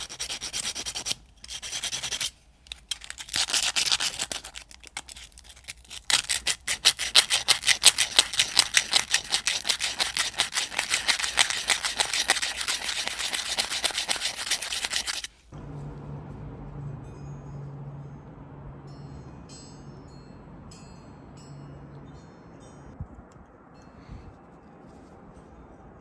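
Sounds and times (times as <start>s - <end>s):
sandpaper scraping on steel blade: 0.0s - 2.4s, 3.0s - 15.4s.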